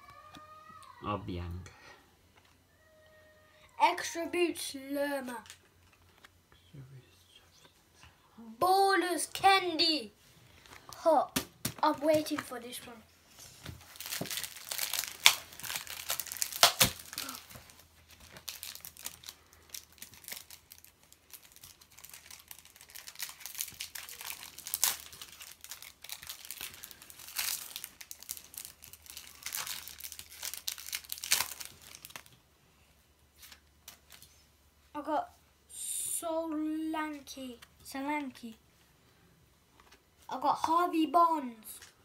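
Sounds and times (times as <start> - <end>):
foil wrapper tearing and crinkling: 13.8 - 32.4.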